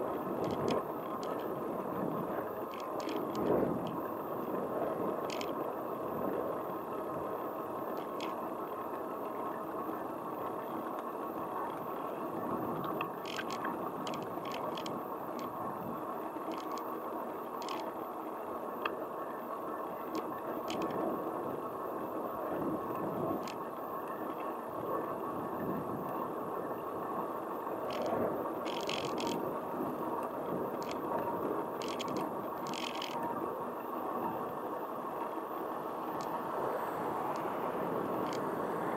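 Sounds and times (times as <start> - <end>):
rolling on paved street: 0.0 - 38.9
clicks and rattles from bumps: 2.6 - 4.0, 12.8 - 15.5, 16.4 - 17.0, 27.8 - 29.4.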